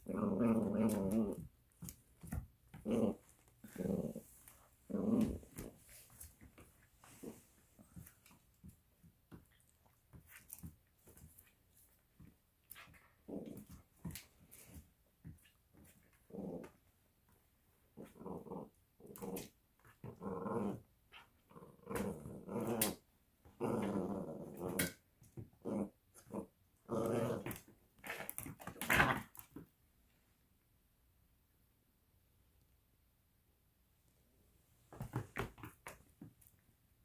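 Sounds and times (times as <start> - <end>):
puppies growling in play: 0.0 - 9.7, 12.7 - 14.8, 15.8 - 16.8, 17.9 - 29.6.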